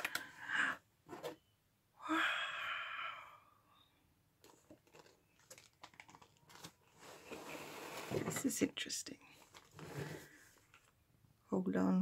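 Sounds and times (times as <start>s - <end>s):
plastic bags crinkling: 4.4s - 7.4s.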